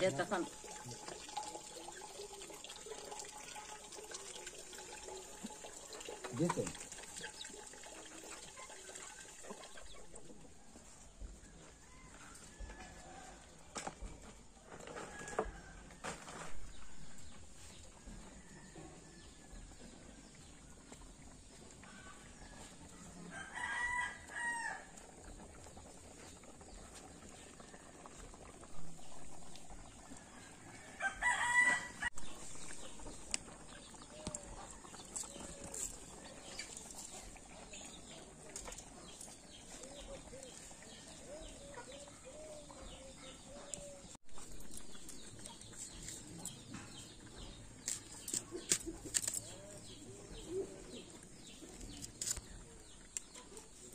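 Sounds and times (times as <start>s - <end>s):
rooster crowing: 30.9s - 32.1s.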